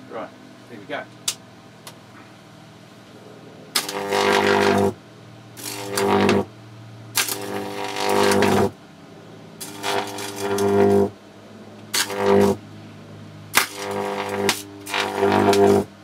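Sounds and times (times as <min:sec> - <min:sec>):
electric arc buzzing: 0:03.7 - 0:05.0, 0:05.6 - 0:08.8, 0:09.6 - 0:11.2, 0:11.9 - 0:12.6, 0:13.5 - 0:16.0.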